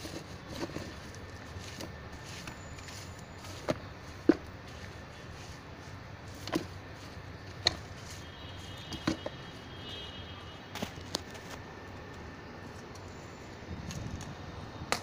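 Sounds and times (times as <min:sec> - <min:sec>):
wooden tool striking compost: 0:00.0 - 0:08.2, 0:08.8 - 0:09.4.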